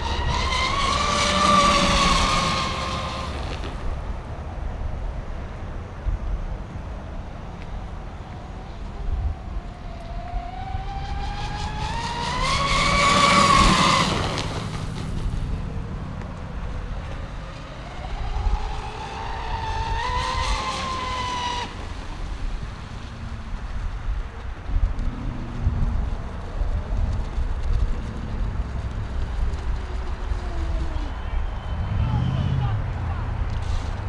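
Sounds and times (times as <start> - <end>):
wind rumbling on microphone: 0.0 - 34.0.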